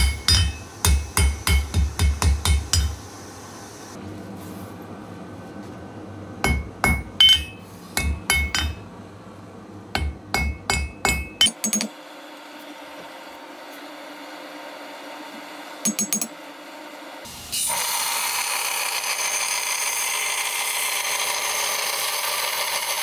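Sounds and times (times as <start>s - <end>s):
hammer striking metal on anvil: 0.0s - 3.0s, 6.4s - 8.9s, 9.9s - 12.0s, 15.8s - 16.3s.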